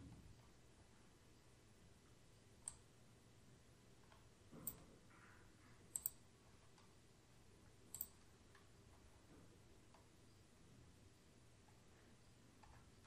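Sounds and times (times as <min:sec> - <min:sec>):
computer keys or mouse clicks: 0:02.6 - 0:02.9, 0:05.9 - 0:06.2, 0:07.9 - 0:08.2.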